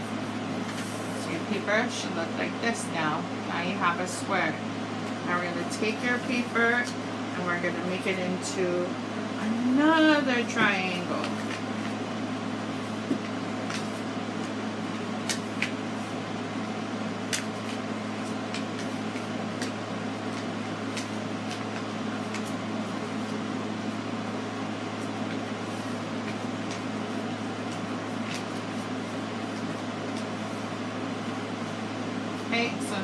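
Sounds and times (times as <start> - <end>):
steady low hum: 0.0 - 33.0
paper being folded and creased: 25.0 - 30.7.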